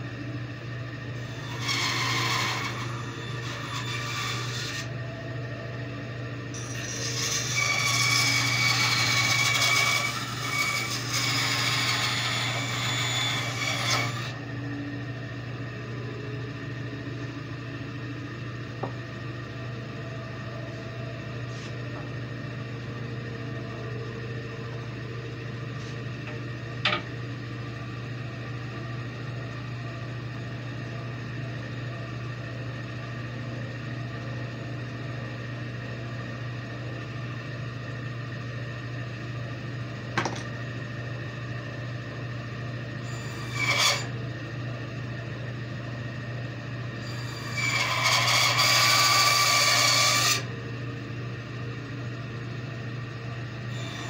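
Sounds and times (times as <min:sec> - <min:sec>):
bandsaw running with steady hum: 0:00.0 - 0:33.3, 0:39.6 - 0:54.0
bandsaw blade cutting wood: 0:01.3 - 0:04.9, 0:06.6 - 0:14.4, 0:43.1 - 0:44.1, 0:47.1 - 0:50.5
short rasp: 0:01.4 - 0:04.9, 0:06.6 - 0:14.4, 0:43.2 - 0:44.1, 0:47.2 - 0:50.4.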